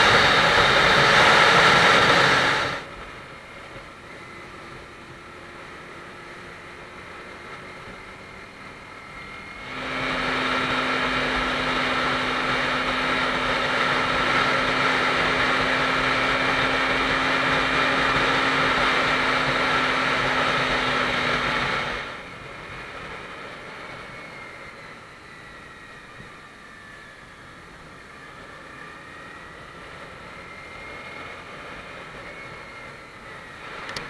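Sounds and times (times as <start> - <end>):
wind rush: 0.0 - 3.4
motorcycle engine drone: 0.0 - 34.0.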